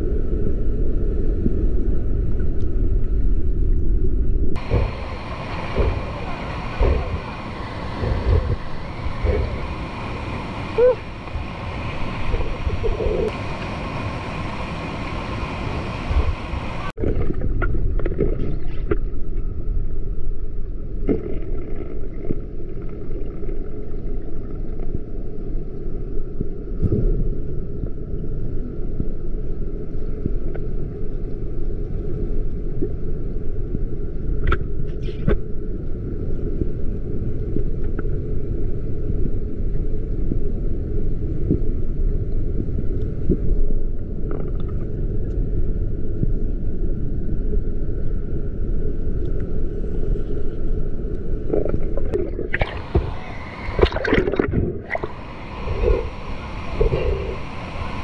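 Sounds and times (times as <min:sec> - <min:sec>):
muffled underwater rumble and gurgling: 0:00.0 - 0:58.0
rushing water: 0:04.6 - 0:19.0, 0:51.5 - 0:58.0.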